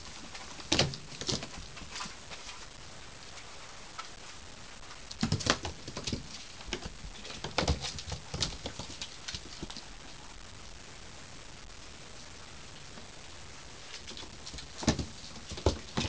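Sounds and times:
kitten paws scrabbling on wood: 5.1 - 9.8.

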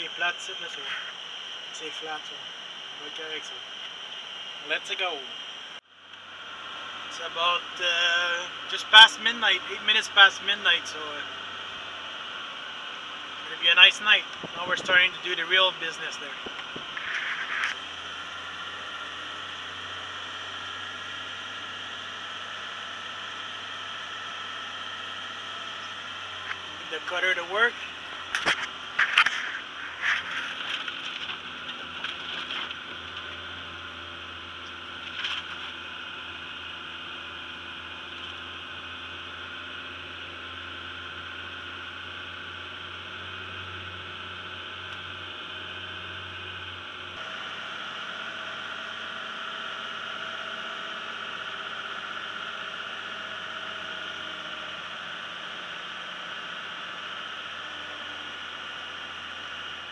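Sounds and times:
diesel tractor engine droning: 0.0 - 59.9
knocks and scrapes: 16.4 - 17.8.

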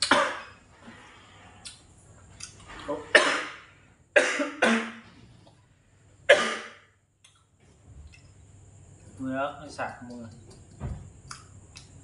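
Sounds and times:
man coughing hard: 3.1 - 3.6, 4.2 - 5.0, 6.3 - 6.9.

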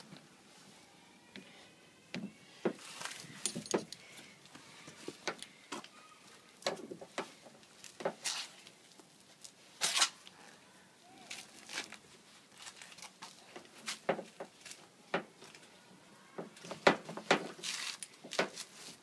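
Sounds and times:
chain scraping rustles: 2.8 - 4.0
chain links clinking: 3.4 - 4.0.

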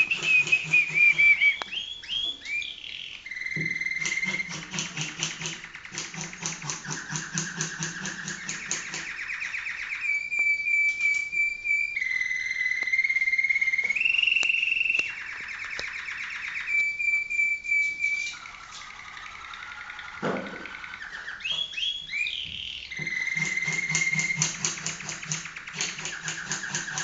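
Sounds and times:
canary singing: 0.0 - 27.0.

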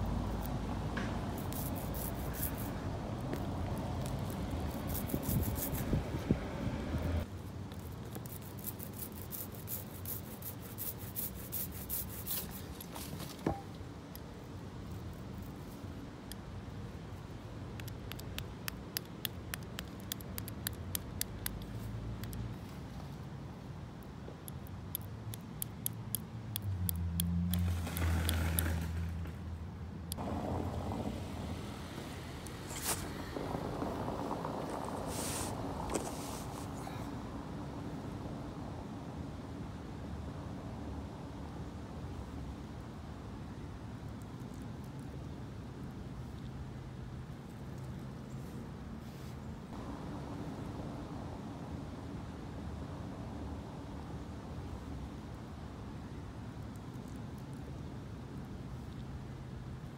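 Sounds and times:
vehicle engine hum passing: 0.0 - 7.3, 26.4 - 41.4, 49.8 - 55.1
steady background noise: 0.0 - 59.9.

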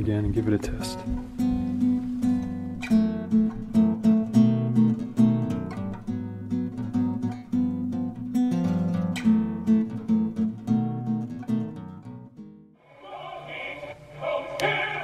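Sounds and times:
acoustic guitar plucked notes: 0.9 - 12.7.

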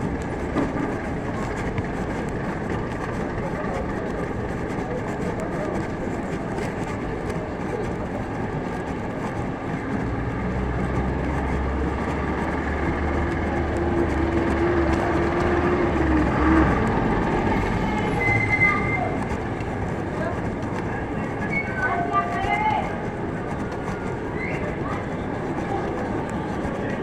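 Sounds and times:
engine low rumble: 0.0 - 21.6
city street traffic: 0.0 - 27.0.

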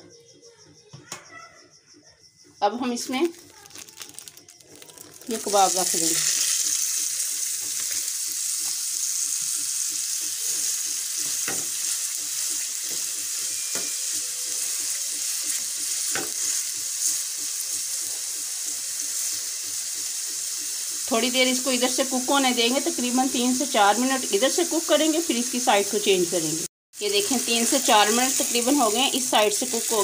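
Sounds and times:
meat sizzling in hot oil: 3.2 - 30.0.

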